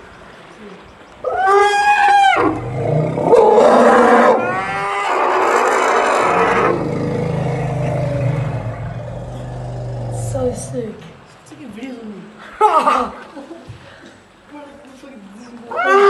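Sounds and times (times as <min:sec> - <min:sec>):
elephants trumpeting: 0:01.3 - 0:10.8
low steady rumble: 0:06.1 - 0:11.3.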